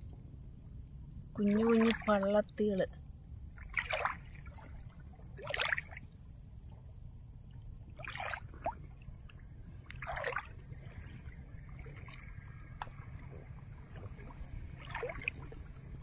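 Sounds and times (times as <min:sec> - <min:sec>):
feet splashing in water: 0:01.4 - 0:02.1, 0:03.6 - 0:06.0, 0:08.0 - 0:16.0.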